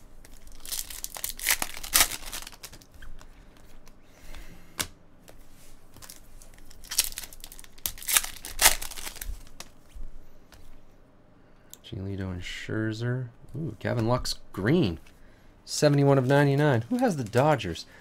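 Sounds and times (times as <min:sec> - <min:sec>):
foil wrapper tearing: 0:00.3 - 0:02.9, 0:06.0 - 0:09.6
foil crinkling and rustling: 0:00.3 - 0:03.0, 0:06.0 - 0:09.7.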